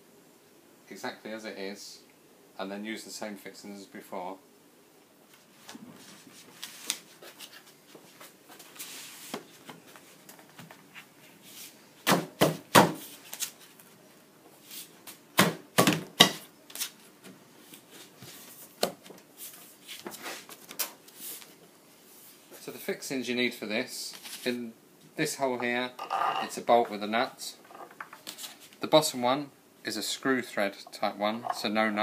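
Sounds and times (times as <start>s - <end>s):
wood scraping and rubbing: 25.5s - 27.0s, 27.6s - 28.6s, 30.9s - 31.8s.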